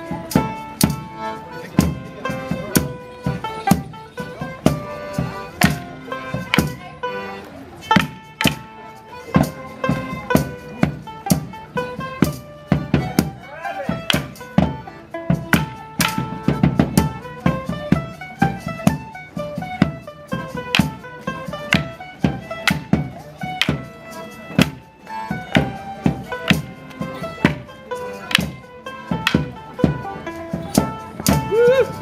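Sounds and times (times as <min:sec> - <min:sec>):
fiddle: 0:00.0 - 0:32.0
folk dance tune on squeezebox: 0:00.0 - 0:32.0
wooden sticks clacking: 0:06.5 - 0:06.8, 0:07.9 - 0:08.7, 0:14.0 - 0:14.5, 0:15.5 - 0:16.3, 0:20.6 - 0:24.8, 0:25.4 - 0:31.8.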